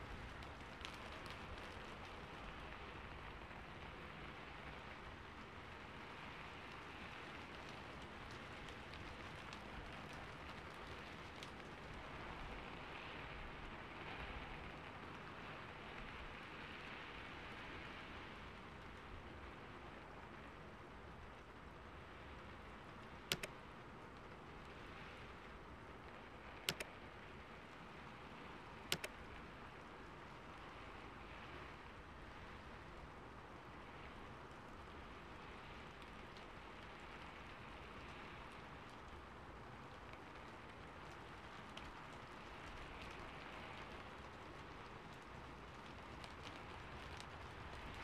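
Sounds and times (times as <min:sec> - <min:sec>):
faint steady hiss: 0:00.0 - 0:48.0
double mouse clicks: 0:23.3 - 0:23.5, 0:26.6 - 0:26.9, 0:28.9 - 0:29.1.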